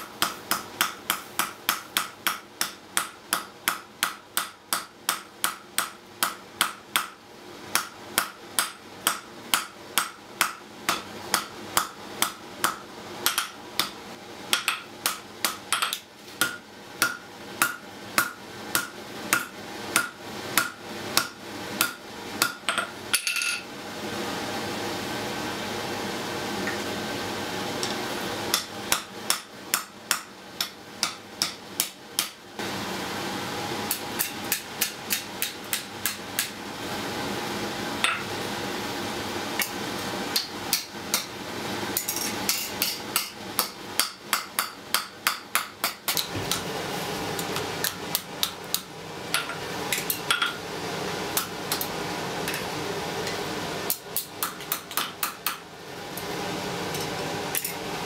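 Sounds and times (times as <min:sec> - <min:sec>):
hammer striking iron on anvil: 0:00.2 - 0:23.6, 0:28.5 - 0:32.4, 0:33.9 - 0:36.5, 0:38.0 - 0:38.3, 0:42.0 - 0:46.2.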